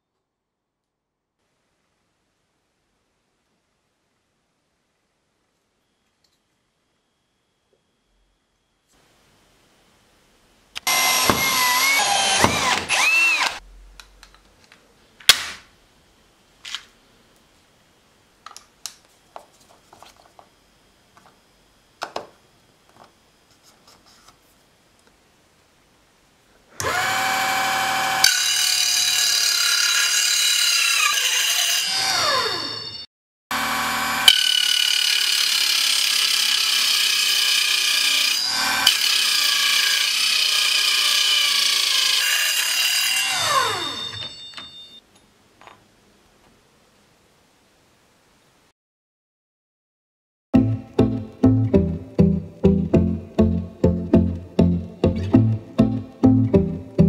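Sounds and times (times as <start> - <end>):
angle grinder cutting metal: 10.8 - 13.6, 26.8 - 44.3
drill boring into metal: 10.8 - 13.6, 26.8 - 44.2.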